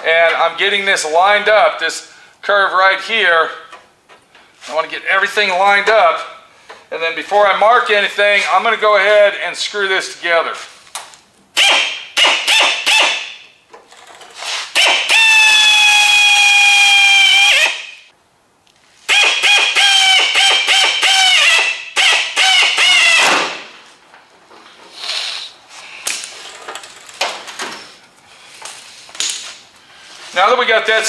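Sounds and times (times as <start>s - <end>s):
power drill whining: 14.8s - 17.8s, 19.1s - 23.3s.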